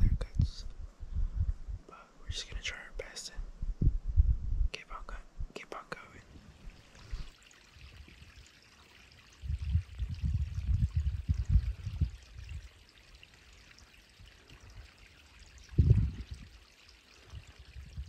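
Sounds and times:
low rumbles buffeting microphone: 0.0s - 5.6s, 9.4s - 12.7s, 15.6s - 16.6s
creek trickling over rocks: 6.4s - 18.0s.

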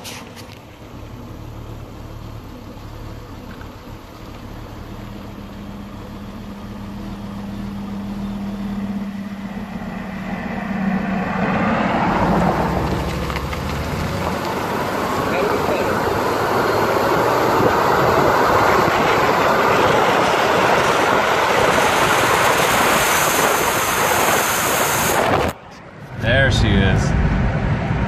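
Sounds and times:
car engine accelerating: 0.2s - 28.0s
tyre and wind rush: 10.2s - 28.0s.

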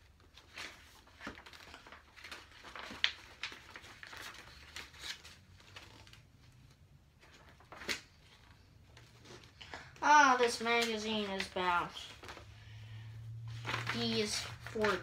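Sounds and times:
paper rustling and crinkling: 0.0s - 15.0s
paper snap: 10.6s - 11.7s, 13.7s - 15.0s.

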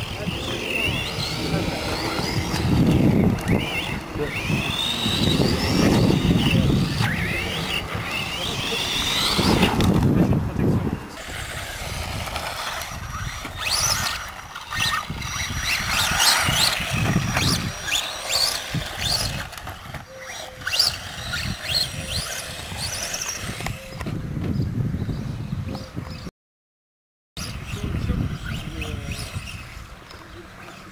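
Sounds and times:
rough rumble: 0.0s - 24.2s
electric motors whining: 0.0s - 25.2s, 27.4s - 30.9s.

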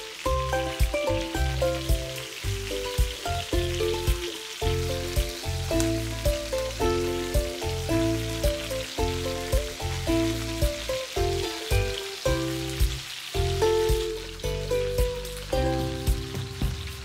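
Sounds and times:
background music with bass: 0.0s - 17.0s
chicken sizzling in hot oil: 0.0s - 17.0s.

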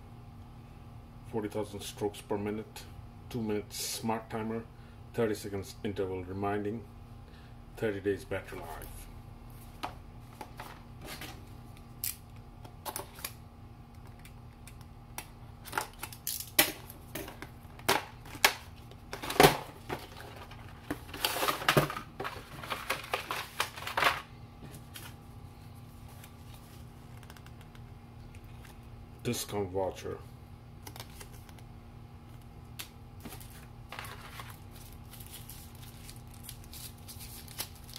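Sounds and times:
cardboard box and packaging handled: 33.2s - 37.9s.

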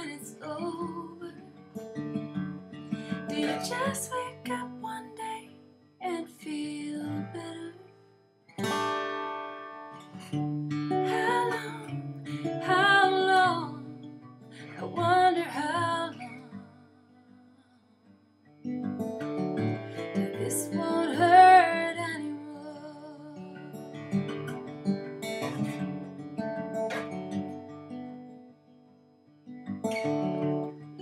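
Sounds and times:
acoustic guitar folk ballad: 0.0s - 31.0s.

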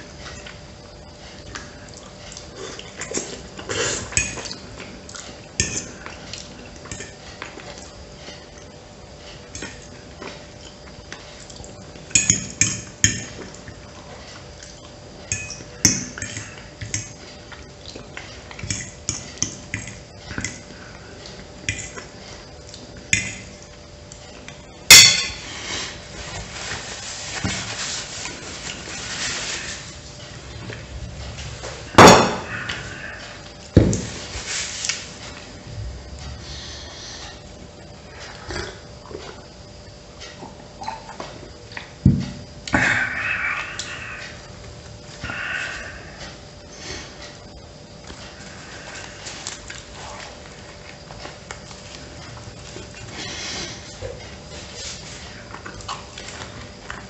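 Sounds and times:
eating sounds: 36.2s - 42.0s, 42.6s - 57.0s.

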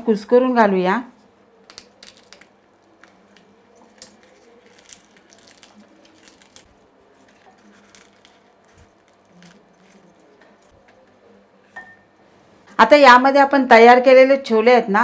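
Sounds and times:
pastry crackling as broken: 1.6s - 10.6s
small clicks and clinks: 1.7s - 11.2s.

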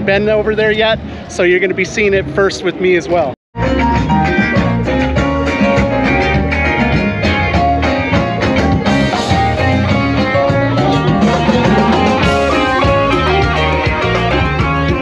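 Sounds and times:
rock music with guitar and drums: 3.6s - 15.0s.

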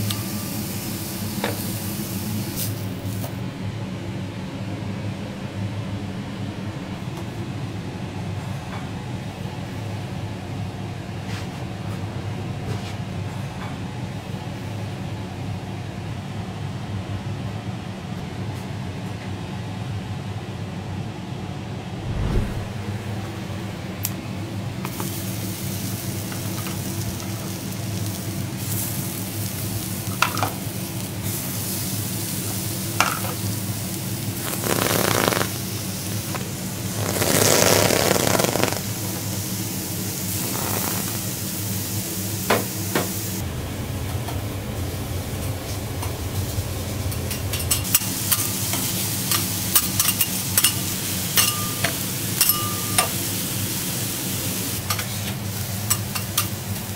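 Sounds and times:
crab sizzling on a griddle: 0.0s - 3.2s, 24.9s - 43.4s, 47.8s - 56.9s.

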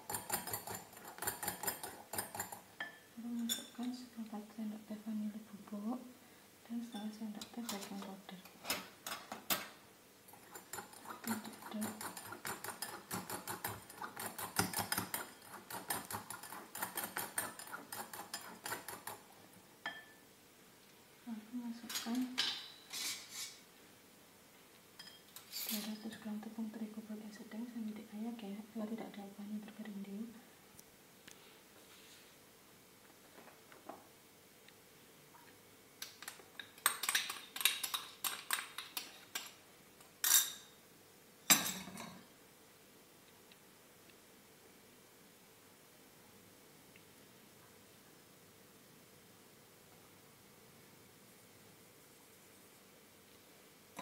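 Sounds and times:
spoon scraping glass bowl: 0.0s - 3.8s, 10.4s - 19.2s.

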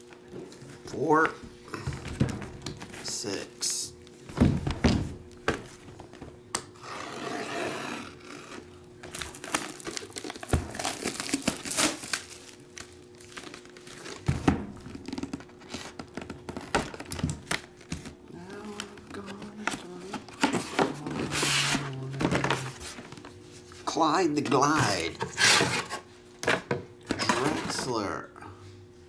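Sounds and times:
shrink wrap tearing and crumpling: 9.1s - 14.2s.

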